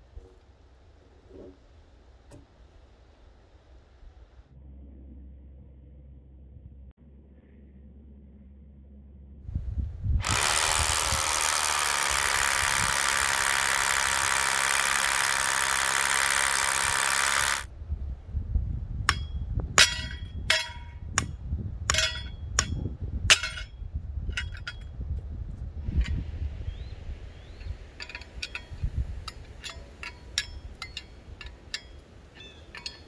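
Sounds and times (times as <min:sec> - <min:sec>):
power drill running: 0:10.2 - 0:17.7.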